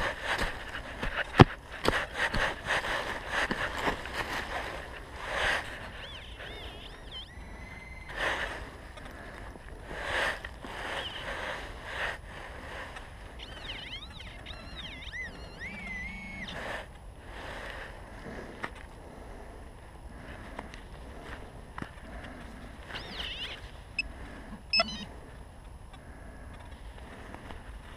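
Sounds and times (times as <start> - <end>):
soil and dry leaves rustling: 0.0 - 18.9
warbling electronic tone: 6.0 - 8.2, 13.4 - 16.7, 24.7 - 25.1.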